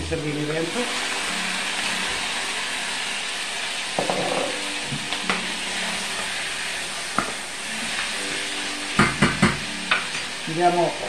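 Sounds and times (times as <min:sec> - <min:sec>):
vegetables sizzling in oil: 0:00.0 - 0:11.0
spoon knocking against pan: 0:04.0 - 0:04.6, 0:09.0 - 0:10.1.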